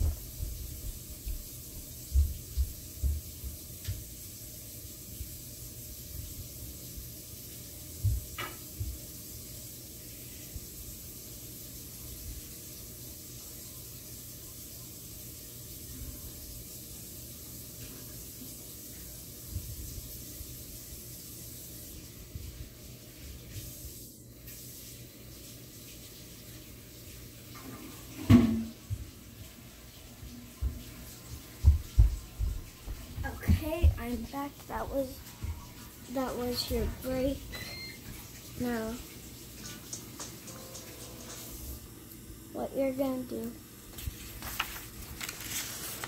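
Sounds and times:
steady background hiss: 29.0s - 46.0s.

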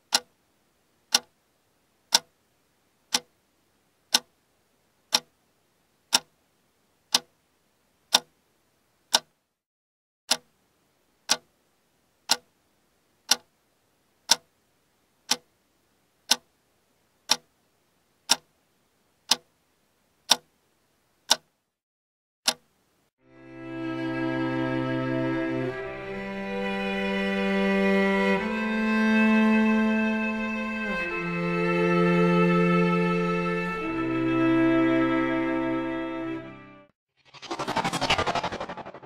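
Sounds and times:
clock ticking: 0.0s - 0.4s, 1.0s - 1.4s, 2.1s - 2.4s, 3.1s - 3.4s, 4.1s - 4.4s, 5.1s - 5.4s, 6.1s - 6.4s, 7.1s - 7.4s, 8.1s - 8.4s, 9.1s - 9.4s, 10.3s - 11.6s, 12.2s - 12.6s, 13.3s - 13.6s, 14.2s - 14.6s, 15.2s - 15.5s, 16.3s - 16.6s, 17.3s - 17.6s, 18.2s - 18.6s, 19.2s - 19.5s, 20.3s - 20.6s, 21.3s - 21.6s, 22.5s - 22.8s.

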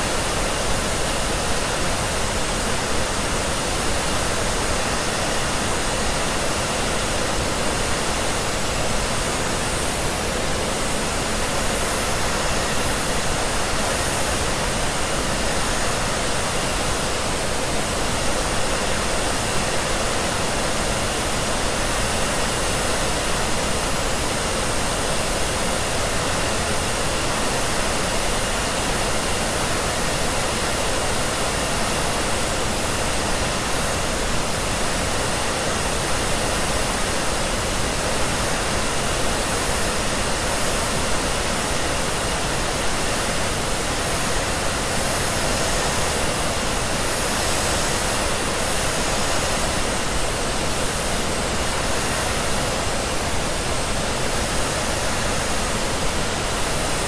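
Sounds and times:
pink noise hiss: 0.0s - 57.0s.

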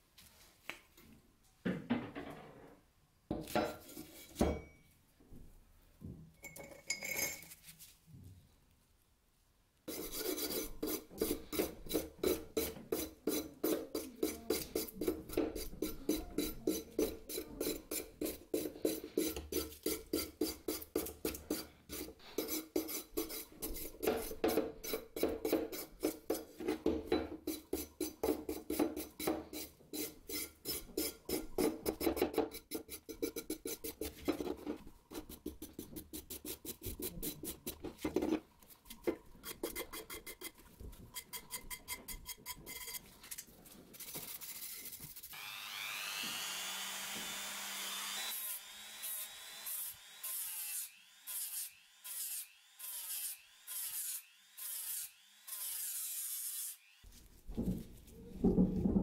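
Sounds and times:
wire brush scrubbing metal: 9.9s - 26.8s, 27.4s - 46.6s.

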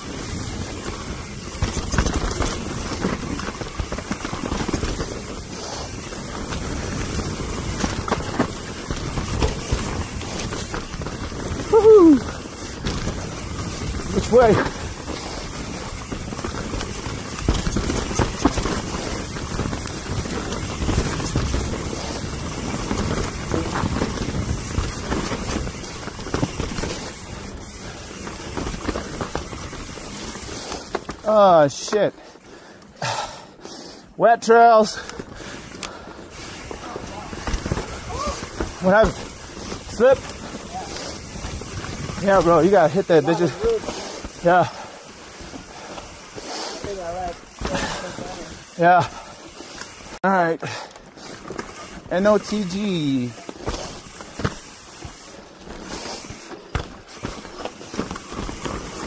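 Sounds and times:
steady rushing noise: 0.0s - 30.9s, 35.5s - 50.2s
bike knocks and rattles: 0.0s - 32.1s, 35.2s - 50.2s, 51.2s - 59.0s
bike tyres rolling over dirt: 0.0s - 59.0s.

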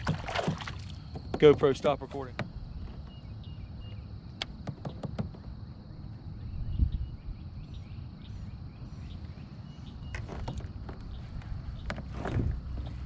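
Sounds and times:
faint bird chirps: 2.6s - 4.2s, 5.7s - 10.3s
low thump: 11.8s - 13.0s.

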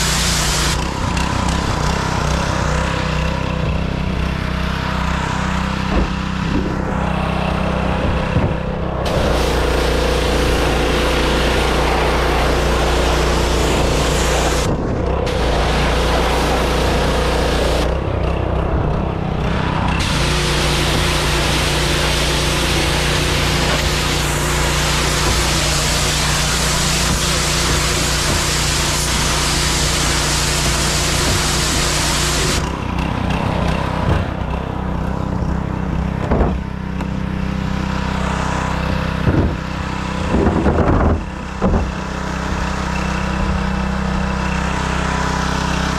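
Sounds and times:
pressure washer spray hissing: 0.0s - 0.9s, 9.0s - 14.7s, 15.3s - 17.9s, 20.0s - 32.8s
engine humming: 0.0s - 45.9s.

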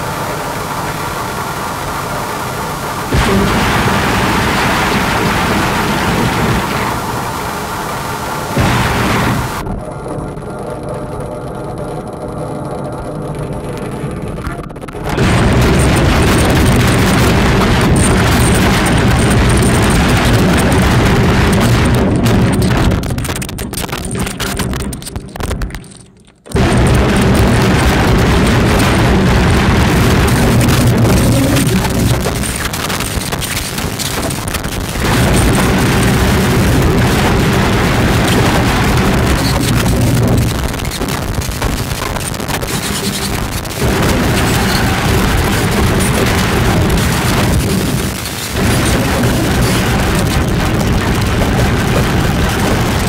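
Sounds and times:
low drone with steady tones: 0.0s - 23.1s, 25.9s - 41.1s
constant crackling: 0.0s - 53.0s
harsh distorted noise: 0.0s - 53.0s.

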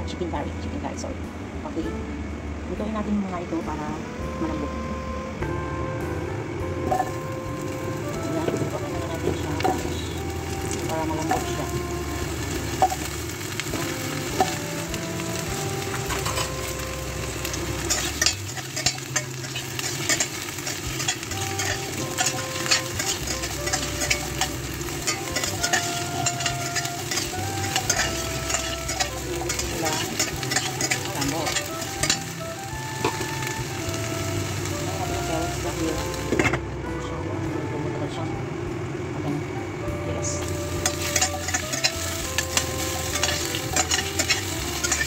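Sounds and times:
carrots sizzling in oil: 6.8s - 36.6s, 40.4s - 45.0s
metal spatula scraping pan: 15.9s - 32.4s, 40.8s - 45.0s.

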